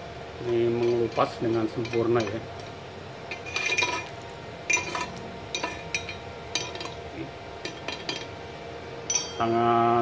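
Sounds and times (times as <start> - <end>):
steel rod clinking on metal plate: 0.4 - 2.7, 3.3 - 4.1, 4.7 - 7.0, 7.6 - 8.3, 9.1 - 9.5.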